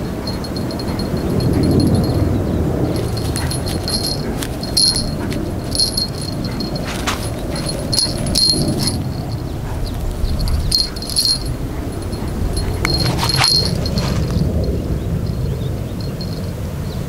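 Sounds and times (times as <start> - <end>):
small bell jingling: 0.0 - 17.0.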